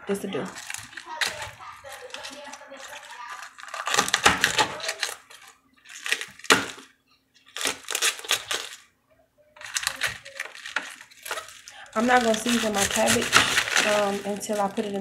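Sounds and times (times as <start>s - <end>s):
knife chopping cabbage on board: 3.8s - 5.1s, 12.2s - 14.2s.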